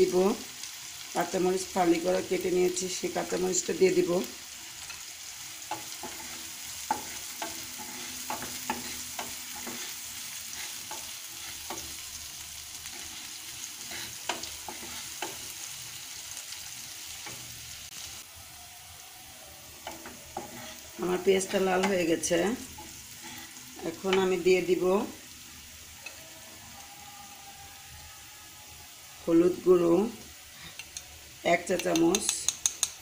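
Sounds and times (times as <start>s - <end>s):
onions sizzling in oil: 0.0s - 33.0s
spatula stirring and tapping pan: 4.6s - 12.1s, 12.8s - 15.8s, 19.8s - 23.4s, 30.7s - 33.0s.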